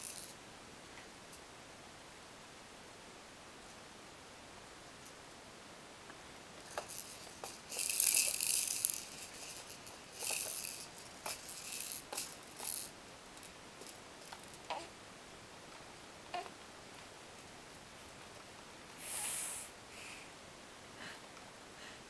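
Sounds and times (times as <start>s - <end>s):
beads rattling in plastic ball: 0.0s - 0.3s, 6.6s - 14.7s.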